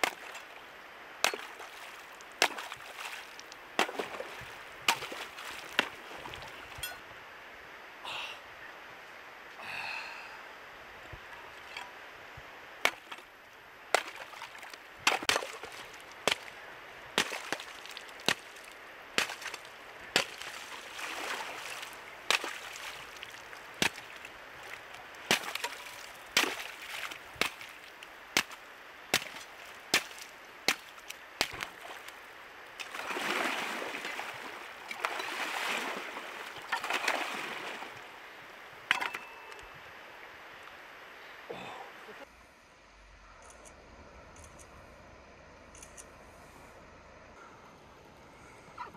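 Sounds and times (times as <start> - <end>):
axe striking ice: 0.0 - 0.5, 1.2 - 1.7, 2.4 - 3.2, 3.8 - 4.2, 4.9 - 6.0, 12.9 - 13.2, 14.0 - 14.4, 15.1 - 16.5, 17.2 - 18.5, 19.2 - 19.6, 20.2 - 20.6, 22.3 - 22.8, 23.8 - 24.1, 25.3 - 27.7, 28.4 - 31.8
water splashing and sloshing: 0.0 - 7.1, 11.1 - 39.6.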